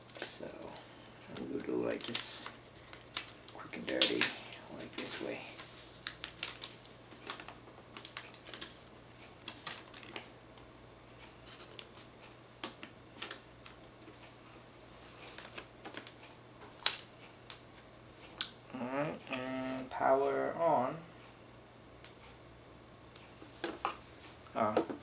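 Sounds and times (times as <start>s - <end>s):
tablet and cable clicks and rustles: 0.0s - 10.7s, 11.4s - 14.3s, 15.2s - 18.6s.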